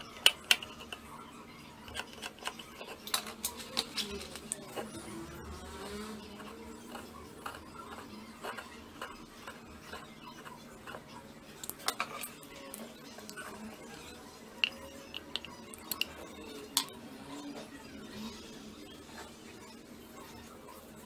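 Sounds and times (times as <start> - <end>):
plastic parts clicking and tapping: 0.0 - 1.1, 1.8 - 4.6, 14.6 - 17.0.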